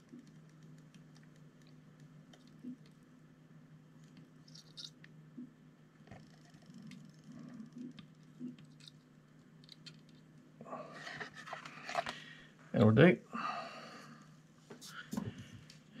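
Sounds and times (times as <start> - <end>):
solder ticking and crackling: 0.0 - 3.1
low steady hum: 0.0 - 16.0.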